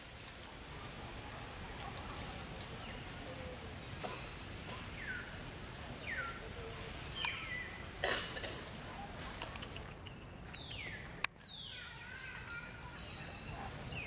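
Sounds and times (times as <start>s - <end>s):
high chirping calls: 7.1s - 7.9s, 9.4s - 12.3s.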